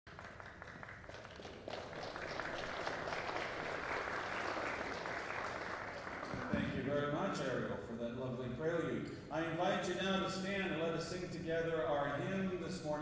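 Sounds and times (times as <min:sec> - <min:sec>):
congregation applauding: 0:00.1 - 0:07.0.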